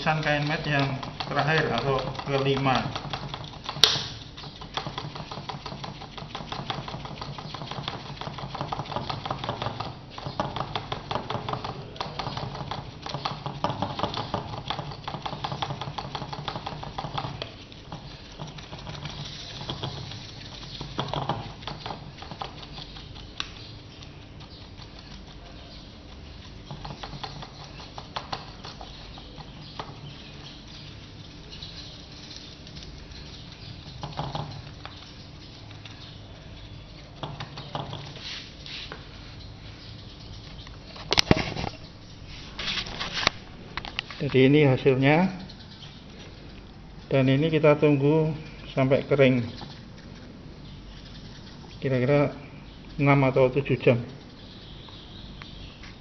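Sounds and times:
paintbrush dabbing wet resin: 0.0 - 3.8, 4.4 - 39.2.

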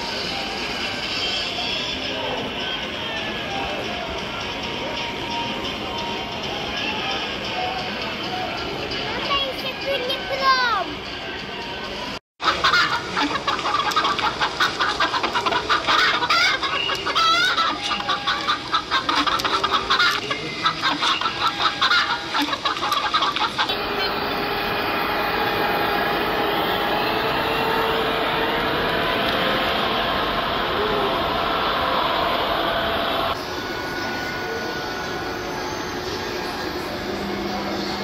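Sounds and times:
hens clucking: 12.4 - 24.4
model train humming: 12.7 - 38.0.

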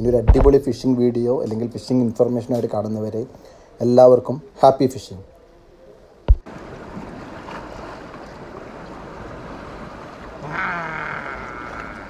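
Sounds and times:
wind: 0.0 - 12.0
sea water noise: 6.3 - 12.0.

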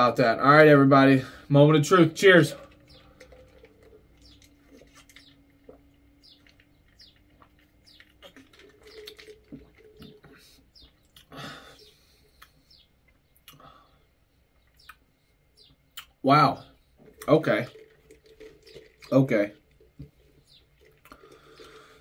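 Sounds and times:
small wet clicks: 2.6 - 11.3, 17.1 - 22.0
person gulping and swallowing: 20.7 - 22.0.

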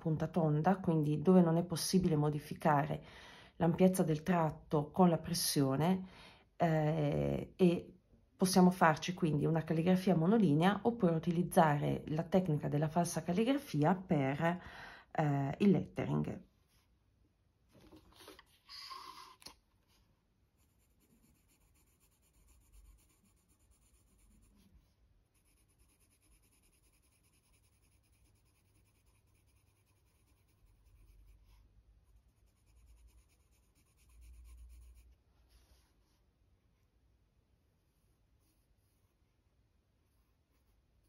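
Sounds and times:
pencil scratching on paper: 18.3 - 35.9, 37.6 - 39.4, 40.0 - 41.0.

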